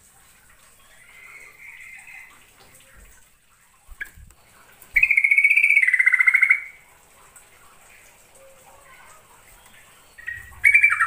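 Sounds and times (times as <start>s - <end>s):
bird singing trilled phrases: 5.0s - 6.8s, 9.6s - 11.0s.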